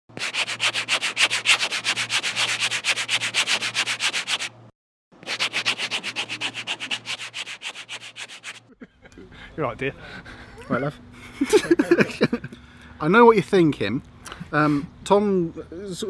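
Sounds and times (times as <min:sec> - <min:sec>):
rapid rhythmic scratching: 0:00.2 - 0:04.5, 0:05.3 - 0:08.6.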